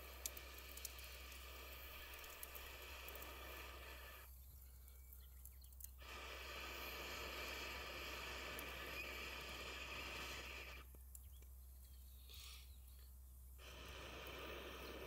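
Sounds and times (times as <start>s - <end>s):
breath blown through pipe hissing: 0.0s - 4.3s, 6.0s - 10.9s, 13.6s - 15.0s.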